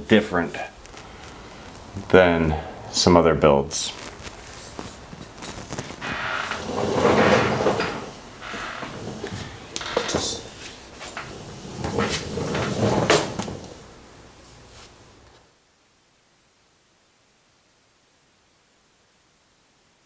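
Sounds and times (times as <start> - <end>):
objects scraping and clunking: 3.9 - 13.8.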